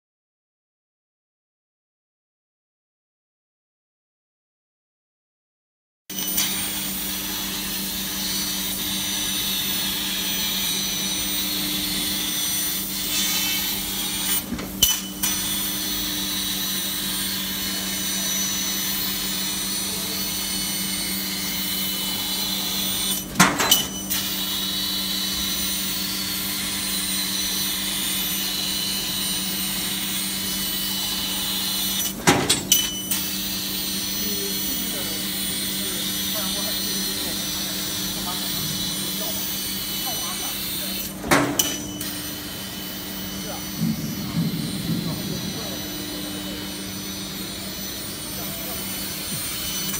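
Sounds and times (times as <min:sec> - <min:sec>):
low machine hum: 0:06.2 - 0:49.9
laser cutter hissing: 0:28.0 - 0:32.4, 0:33.5 - 0:49.9.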